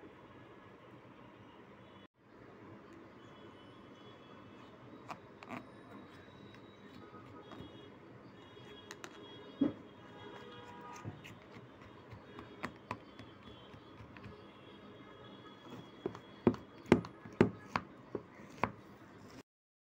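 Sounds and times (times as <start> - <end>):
spatula tapping a dish: 11.2 - 14.4, 16.0 - 18.8.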